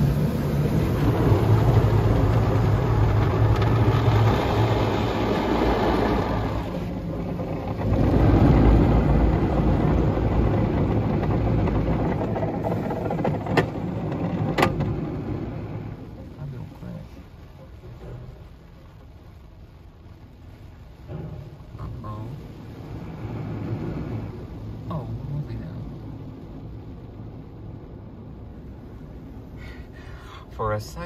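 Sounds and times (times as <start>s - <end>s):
car wash brushes scrubbing glass: 0.0s - 16.4s
low hum: 0.0s - 30.5s.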